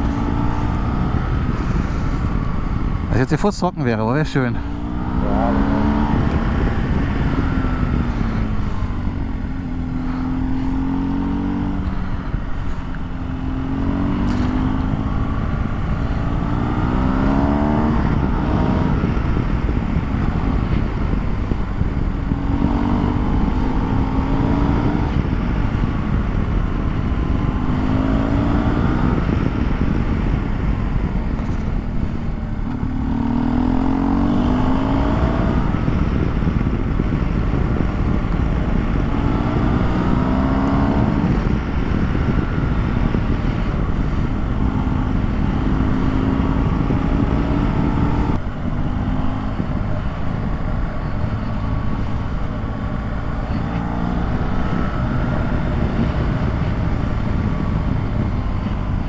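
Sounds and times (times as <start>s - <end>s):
motorcycle engine accelerating: 0.0s - 59.0s
wind and road noise: 0.0s - 59.0s.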